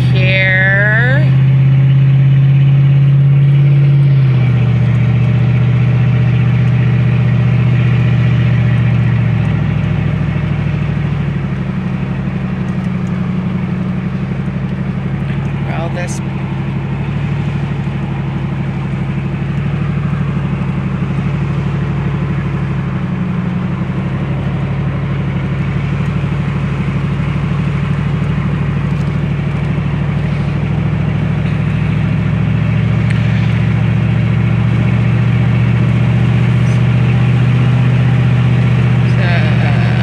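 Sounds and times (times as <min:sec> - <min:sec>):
truck engine and tyre drone: 0:00.0 - 0:40.0.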